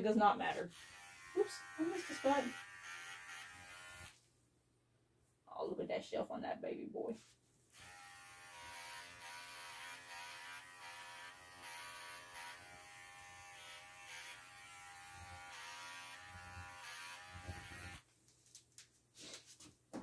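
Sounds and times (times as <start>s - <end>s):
electric clipper buzzing: 0.6s - 4.2s, 7.7s - 18.0s.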